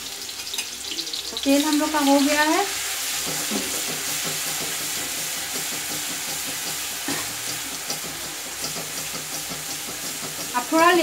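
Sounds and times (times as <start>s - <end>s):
paste sizzling in hot oil: 0.0s - 11.0s
metal ladle stirring in wok: 2.8s - 10.6s.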